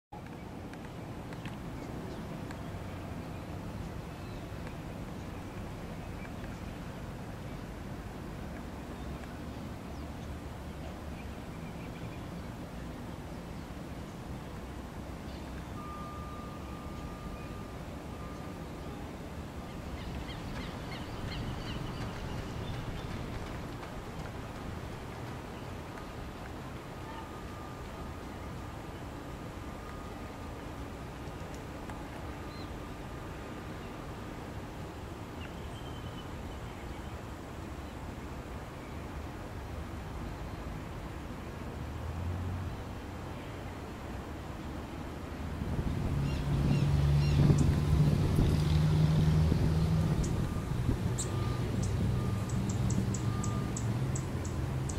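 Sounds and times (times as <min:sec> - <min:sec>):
low outdoor rumble: 0:00.2 - 0:34.0, 0:37.8 - 0:54.9
thin high tone: 0:15.7 - 0:19.2
faint bird chirps: 0:50.2 - 0:54.9.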